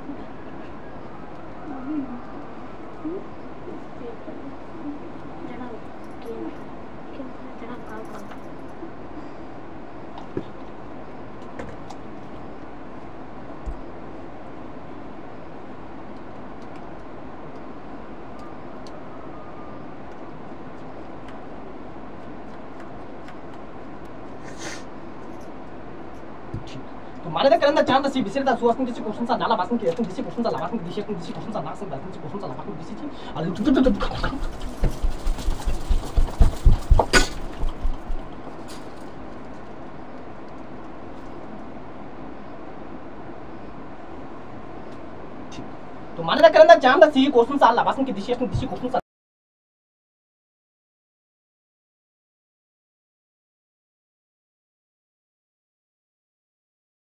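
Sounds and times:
dull low thumps: 34.8s - 38.3s.

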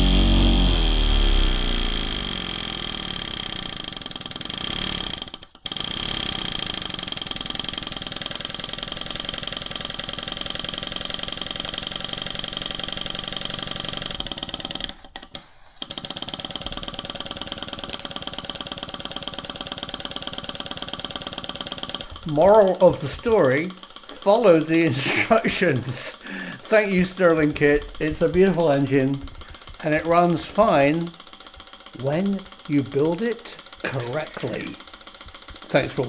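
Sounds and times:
model steam engine running fast: 0.0s - 15.1s, 15.8s - 36.0s.

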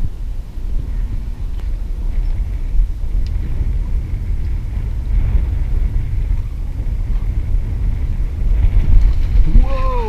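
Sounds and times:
wind buffeting microphone: 0.0s - 10.0s.

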